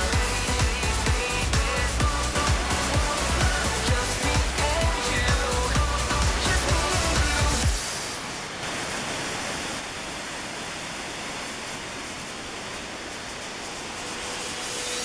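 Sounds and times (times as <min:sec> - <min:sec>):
music track: 0:00.0 - 0:07.8
waterfall rushing: 0:00.0 - 0:15.0.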